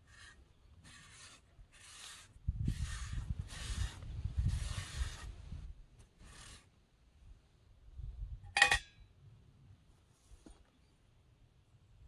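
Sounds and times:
rough rasping strokes: 0:00.0 - 0:06.8
sharp metallic clink: 0:08.5 - 0:09.1.

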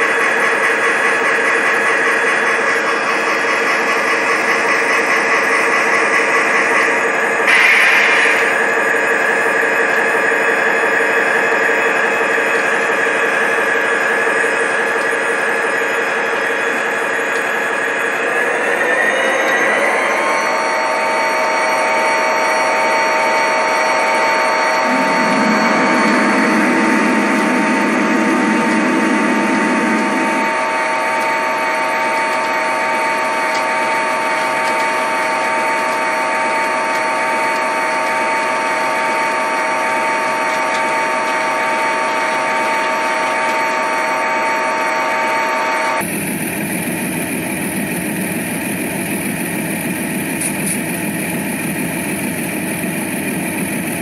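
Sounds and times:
model train motors whining: 0:00.0 - 0:54.0
deeper hum: 0:10.2 - 0:33.6.

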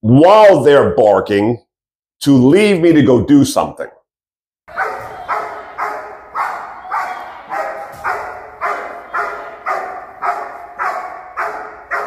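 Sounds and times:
dog barking: 0:04.7 - 0:12.0.

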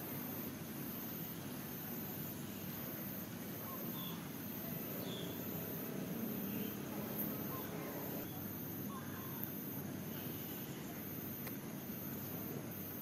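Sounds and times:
low steady rumble: 0:00.0 - 0:08.9
insects pulsing trill: 0:00.0 - 0:13.0
faint bird-like chirps: 0:03.6 - 0:05.5, 0:06.2 - 0:09.5.

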